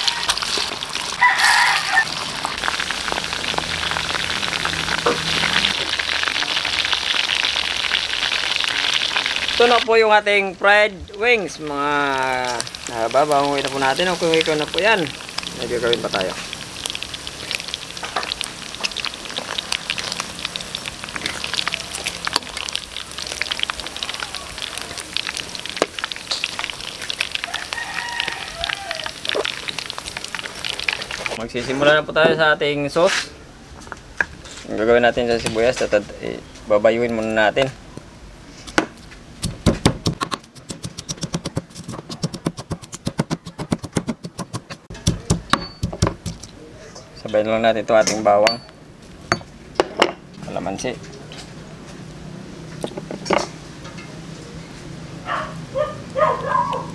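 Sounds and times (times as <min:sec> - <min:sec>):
oil sizzling and crackling: 0:00.0 - 0:31.5, 0:35.5 - 0:43.2, 0:44.5 - 0:46.6
pestle pounding in stone mortar: 0:39.4 - 0:46.5.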